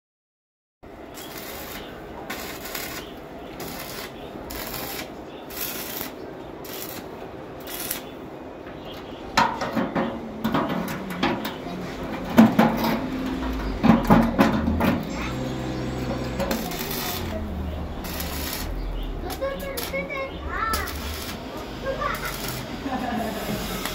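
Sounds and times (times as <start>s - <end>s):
welding arc crackling: 1.0s - 8.2s, 12.5s - 23.9s
steady low hum: 10.2s - 23.9s
sharp knocks: 12.3s - 15.0s.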